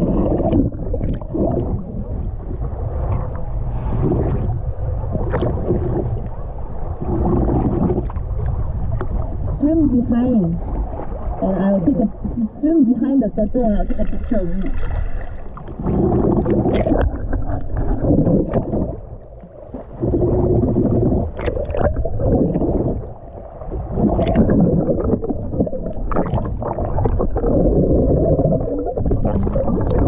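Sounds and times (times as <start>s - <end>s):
underwater rushing and gurgling water: 0.0s - 30.0s
sharp underwater clicks: 20.8s - 22.9s.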